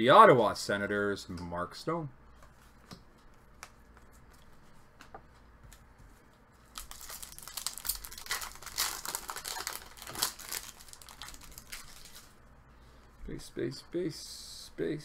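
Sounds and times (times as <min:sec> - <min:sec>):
foil wrapper tearing and crinkling: 0:06.7 - 0:12.3.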